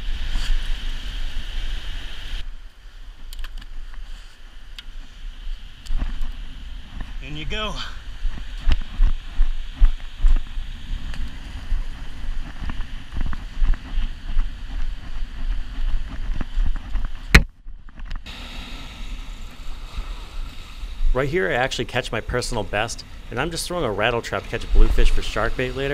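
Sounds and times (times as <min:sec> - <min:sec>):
surf washing on beach: 0:00.0 - 0:17.3, 0:18.2 - 0:25.9
wind buffeting microphone: 0:05.7 - 0:25.9.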